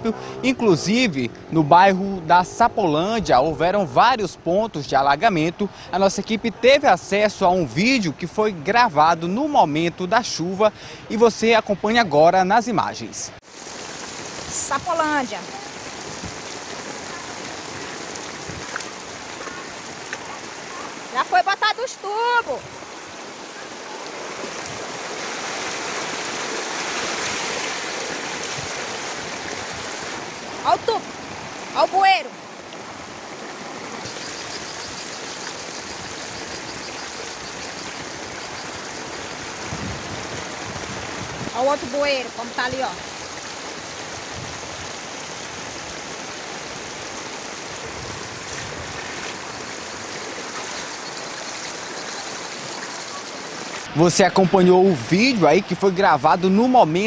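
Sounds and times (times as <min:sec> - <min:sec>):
floodwater rushing down street: 0:00.0 - 0:12.3, 0:13.4 - 0:57.0
heavy rain: 0:13.4 - 0:54.6.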